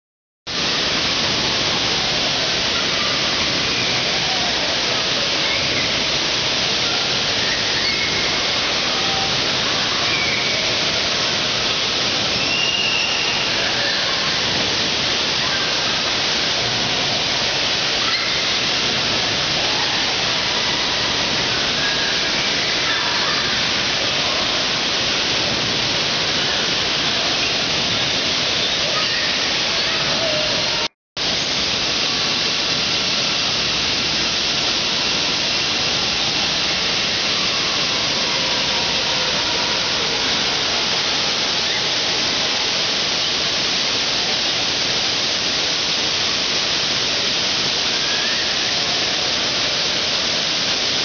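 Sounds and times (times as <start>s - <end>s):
rushing water in wave pool: 0.5s - 51.0s
faint swimmers shouting: 1.4s - 30.9s, 35.9s - 43.2s.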